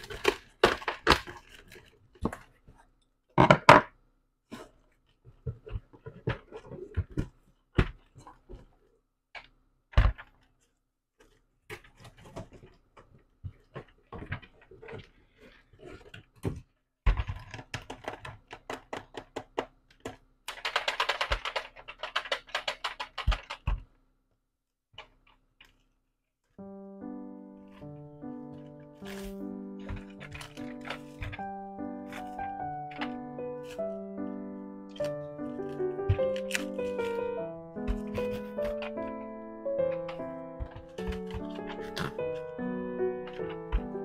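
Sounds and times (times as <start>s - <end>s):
packaging crinkling: 0.0s - 2.6s, 28.5s - 34.1s, 34.9s - 44.0s
box knocks and thumps: 5.3s - 8.7s, 37.8s - 39.1s, 40.0s - 42.5s.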